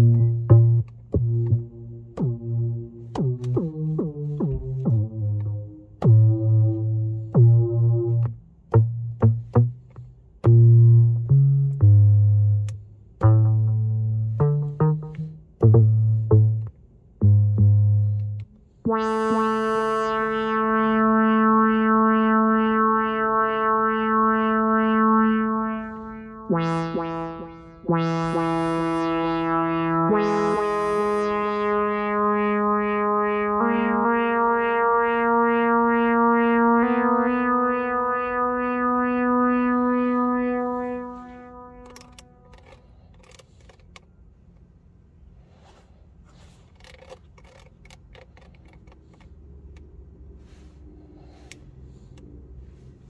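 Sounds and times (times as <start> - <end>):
synthesizer tones: 13.2 - 42.6
faint clicks and scrapes: 41.9 - 44.1, 46.3 - 49.9.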